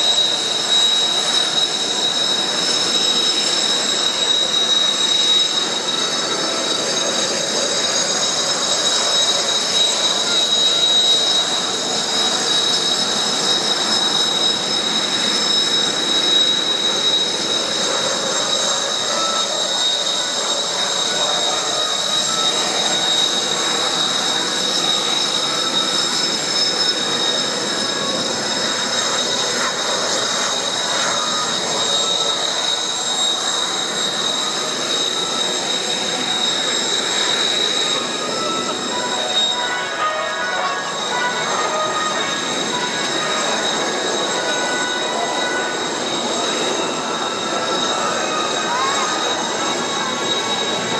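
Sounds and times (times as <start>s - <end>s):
jet engines whining at taxi: 0.0s - 50.9s.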